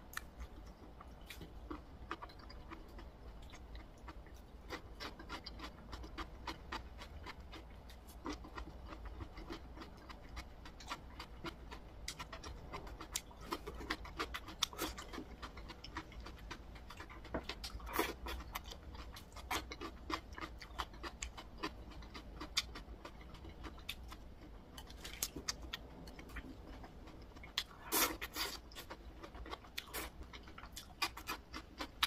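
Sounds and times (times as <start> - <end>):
chewing: 0.1 - 32.0.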